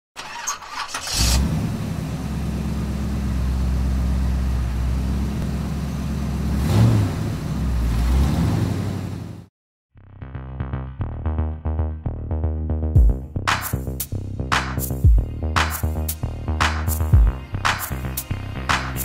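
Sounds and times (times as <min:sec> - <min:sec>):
engine revving: 0:00.2 - 0:09.5
car engine running: 0:01.0 - 0:09.5.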